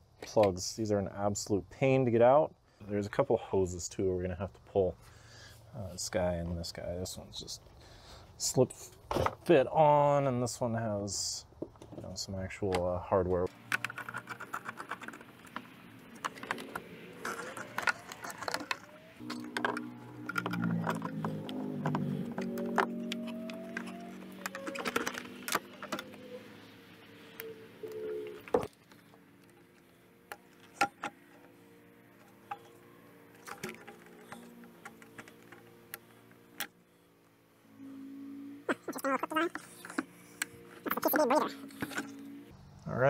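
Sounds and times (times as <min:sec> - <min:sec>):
clicks and rattles of car parts: 0:13.5 - 0:26.2, 0:32.2 - 0:36.8.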